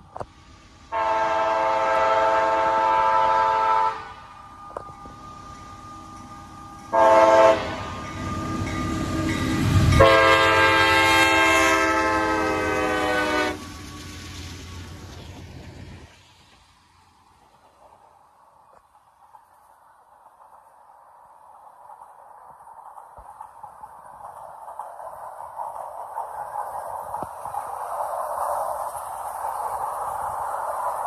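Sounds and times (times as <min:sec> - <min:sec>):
train engine and wheels rumble: 0:00.0 - 0:31.0
locomotive air horn blasts: 0:00.9 - 0:04.8, 0:06.9 - 0:08.0, 0:09.9 - 0:13.6.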